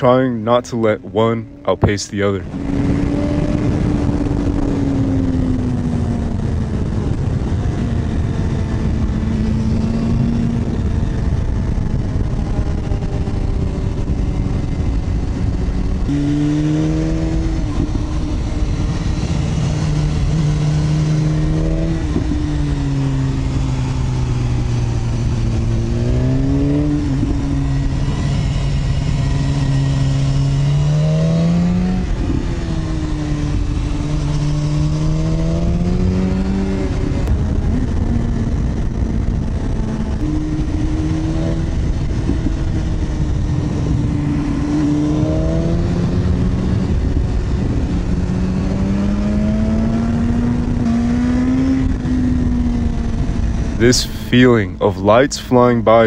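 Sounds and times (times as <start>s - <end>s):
motorcycle engine revving: 1.2s - 53.9s
wind rush: 1.4s - 28.7s.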